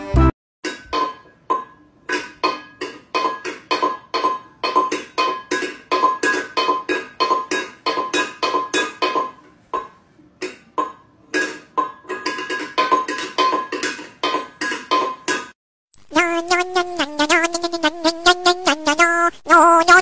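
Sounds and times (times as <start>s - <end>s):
metal bowl clanking on tiles: 0.6s - 15.6s.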